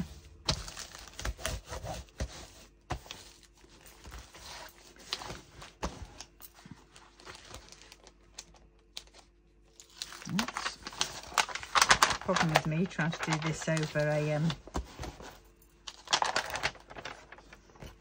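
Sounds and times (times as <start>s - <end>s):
plastic film crinkling: 0.0s - 2.1s, 6.2s - 14.8s, 15.8s - 18.0s.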